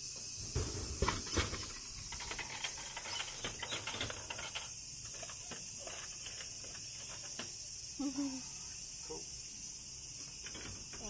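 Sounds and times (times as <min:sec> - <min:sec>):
insects buzzing: 0:00.0 - 0:11.0
coins clinking into coin return: 0:02.1 - 0:07.3.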